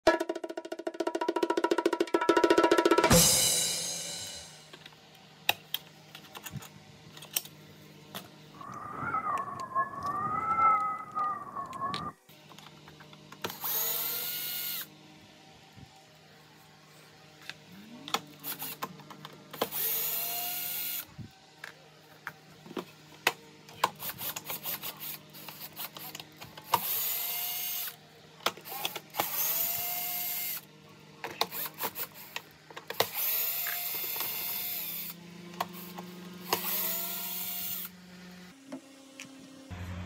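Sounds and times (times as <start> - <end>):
electric drill-driver spinning: 13.4 - 14.9, 19.6 - 21.1, 24.0 - 28.0, 28.6 - 30.6, 31.4 - 38.0.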